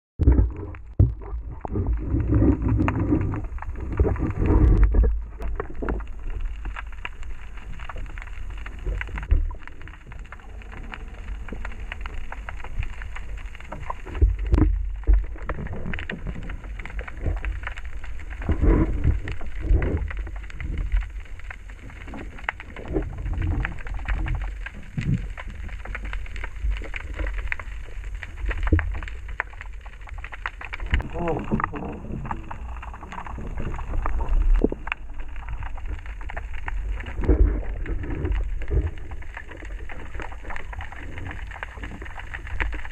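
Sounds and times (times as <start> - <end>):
heavy underwater thumps: 0.2 - 5.5
crackling clicks and knocks: 0.2 - 42.9
underwater rumble of moving water: 0.2 - 42.9.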